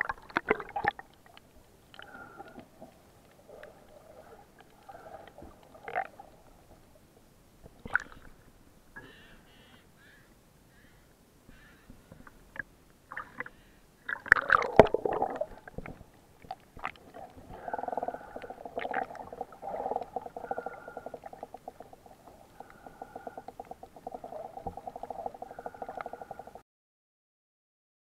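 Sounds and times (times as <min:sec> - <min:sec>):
water splashing: 0:00.0 - 0:06.9, 0:13.1 - 0:26.6
rapid underwater crackling: 0:00.0 - 0:08.5, 0:11.5 - 0:26.6
muffled underwater gurgling: 0:16.8 - 0:26.6.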